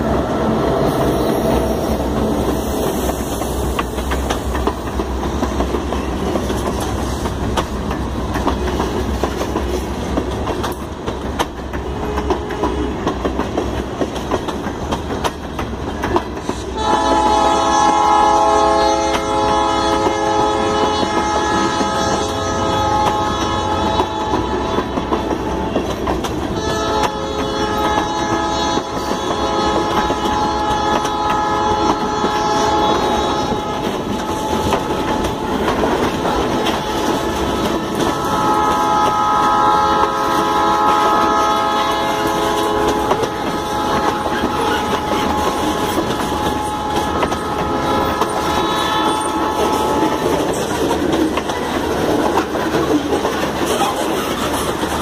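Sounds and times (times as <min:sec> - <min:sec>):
train wheels clacking on rails: 0:00.0 - 0:55.0
locomotive horn: 0:11.9 - 0:13.1, 0:16.7 - 0:50.6.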